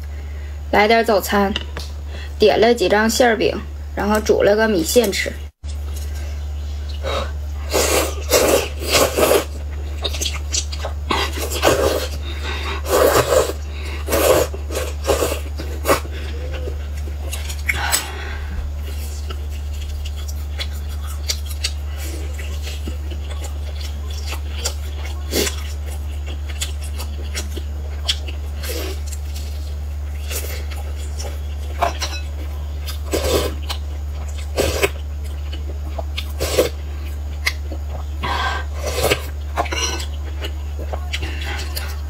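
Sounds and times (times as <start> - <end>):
steady low hum: 0.0 - 42.0
chewing: 5.6 - 42.0
noodles slurped: 7.2 - 18.0.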